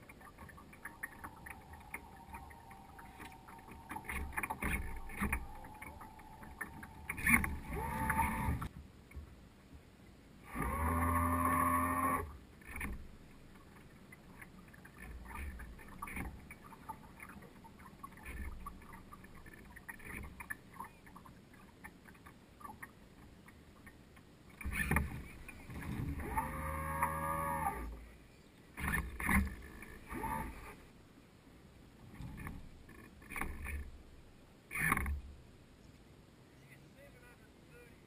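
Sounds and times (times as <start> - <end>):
whining tone bending in pitch: 0.0 - 8.7
water lapping against a hull: 0.0 - 35.7.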